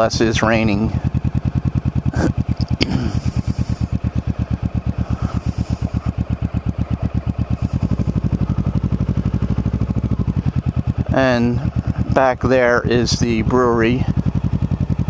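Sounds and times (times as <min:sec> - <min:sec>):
motorcycle engine at low revs: 0:00.0 - 0:15.0.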